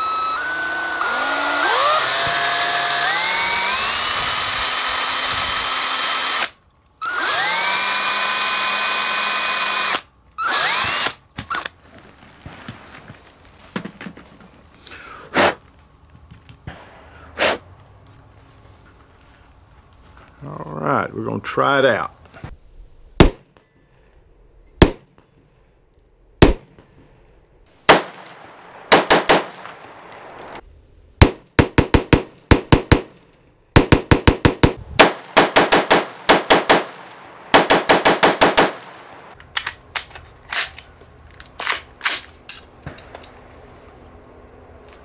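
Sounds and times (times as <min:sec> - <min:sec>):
rifle gunshots: 0:26.4 - 0:26.8, 0:27.9 - 0:30.5, 0:31.2 - 0:33.2, 0:33.8 - 0:39.4.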